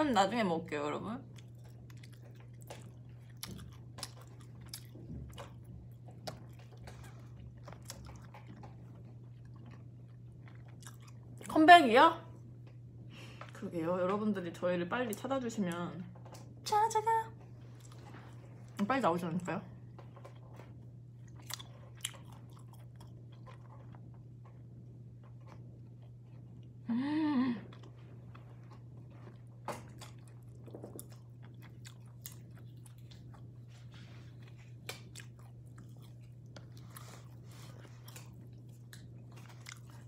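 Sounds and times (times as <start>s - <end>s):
steady low hum: 0.0s - 40.0s
person chewing food: 1.3s - 11.5s, 19.8s - 26.8s, 27.7s - 40.0s.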